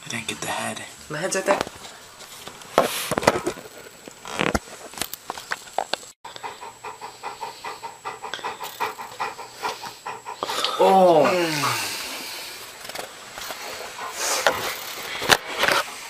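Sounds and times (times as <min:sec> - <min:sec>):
handling knocks and rustles: 0:01.5 - 0:06.1
dog panting: 0:06.3 - 0:16.0.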